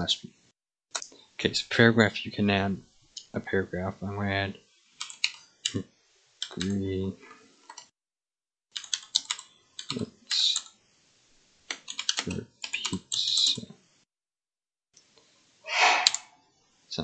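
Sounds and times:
keyboard typing: 5.0s - 5.4s, 6.4s - 6.8s, 8.7s - 10.7s, 11.7s - 13.5s
short rush of noise: 15.7s - 16.4s.

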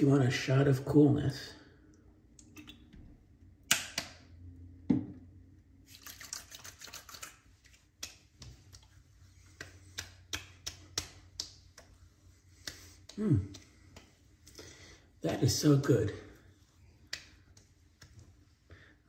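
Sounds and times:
wet hands patting face: 5.9s - 15.1s, 16.4s - 18.9s.

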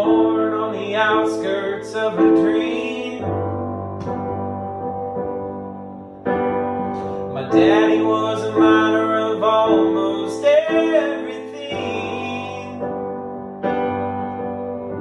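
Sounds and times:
man singing: 0.0s - 3.7s, 7.3s - 13.0s
piano chords: 0.0s - 15.0s.

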